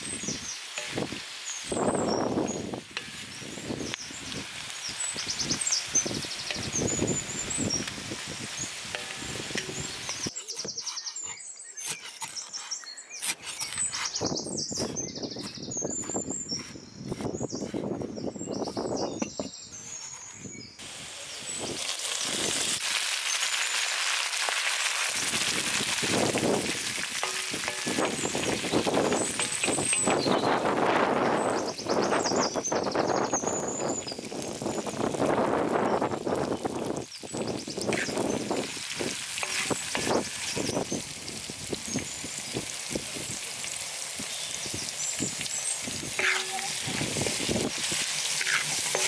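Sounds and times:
potatoes frying in oil: 0:00.0 - 0:11.9, 0:20.8 - 0:49.0
birds chirping: 0:00.0 - 0:22.5, 0:27.2 - 0:34.2, 0:35.2 - 0:41.2, 0:44.2 - 0:49.0
wooden spoon stirring in pan: 0:08.6 - 0:14.2, 0:24.4 - 0:30.7, 0:37.8 - 0:40.8, 0:45.6 - 0:49.0.

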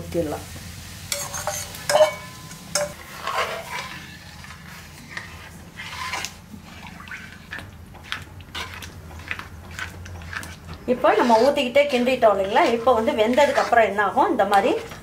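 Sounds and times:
metal spoon scraping a pan: 0:01.1 - 0:15.0
liquid sloshing: 0:05.1 - 0:13.9.

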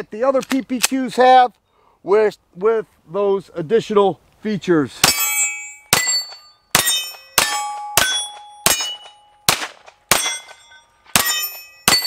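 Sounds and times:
steel targets ringing: 0:05.0 - 0:12.0
pistol shots: 0:05.9 - 0:12.0.

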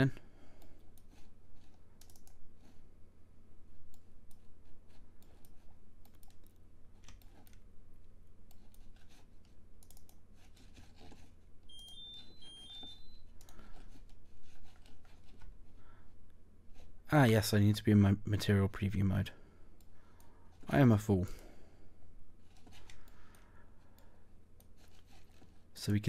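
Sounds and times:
mouse clicks: 0:08.4 - 0:10.2
short high tones: 0:11.7 - 0:13.3.

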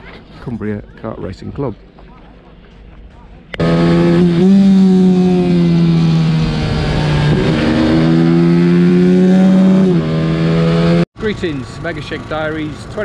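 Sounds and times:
minibike engine revving high: 0:03.6 - 0:13.0.

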